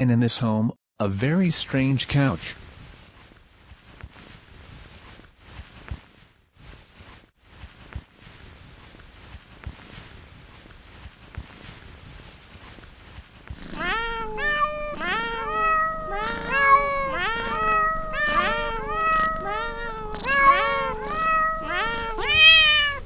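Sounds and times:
cat meowing: 13.6 - 23.0.

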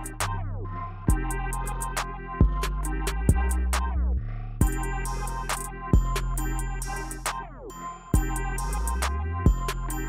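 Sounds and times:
deep bass notes: 0.0 - 7.6, 8.2 - 10.0
high ticking cymbals: 6.0 - 10.0.

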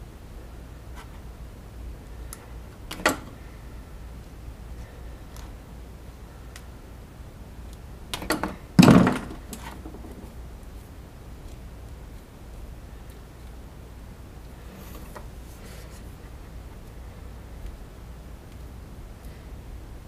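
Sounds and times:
hard knocks and thuds: 8.8 - 10.3.

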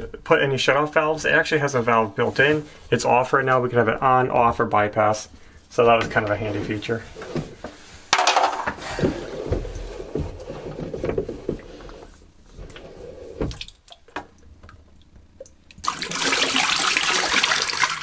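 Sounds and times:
water pouring and splashing: 15.8 - 18.0.

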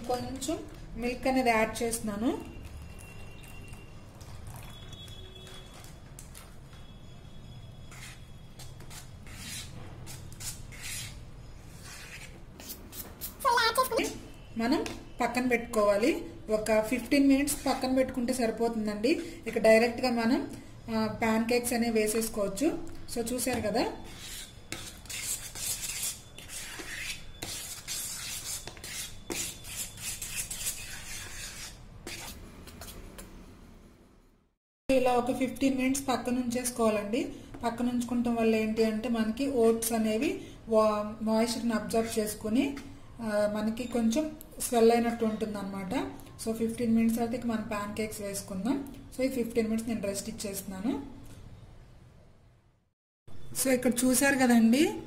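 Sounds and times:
spoon stirring batter in bowl: 0.1 - 6.8, 16.9 - 18.7, 23.2 - 33.3.

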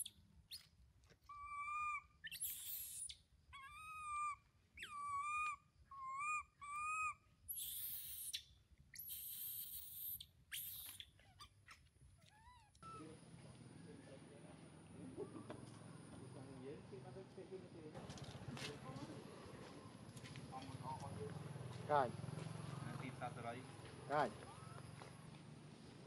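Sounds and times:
monkey screeching: 0.0 - 0.7, 1.3 - 13.2, 24.4 - 24.8
baby monkey whimpering cries: 1.3 - 8.4, 9.0 - 13.2, 24.5 - 24.8.

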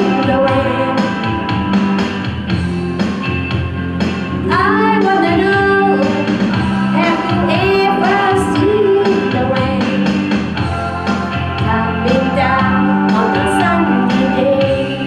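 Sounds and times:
woman singing into microphone: 0.0 - 1.5, 4.4 - 10.2, 11.6 - 15.0
karaoke backing track with drums: 0.0 - 15.0.

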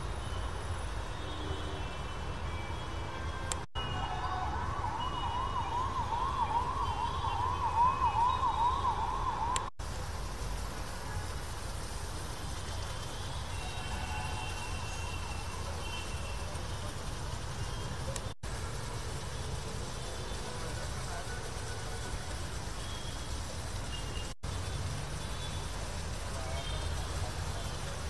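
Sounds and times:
electronic siren yelping: 3.8 - 9.7.

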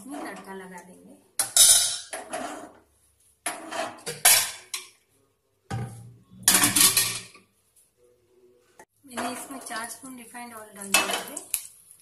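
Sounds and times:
metal pot scraping on stovetop: 1.7 - 4.3.

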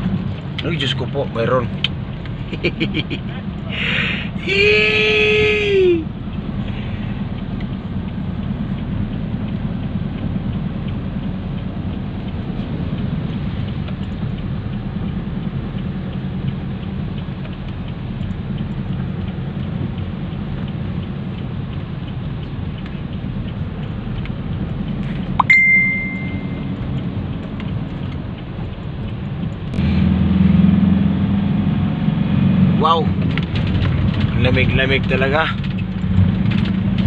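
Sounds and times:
engine and tyres rumbling: 0.0 - 37.0
rain pattering on vehicle roof: 33.2 - 37.0.

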